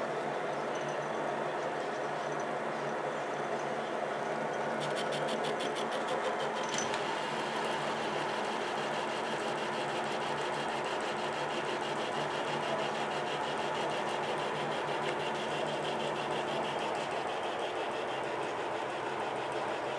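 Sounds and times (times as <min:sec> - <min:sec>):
lathe motor and gear hum: 0:00.0 - 0:19.9
cutting tool hiss and chatter: 0:04.8 - 0:19.9.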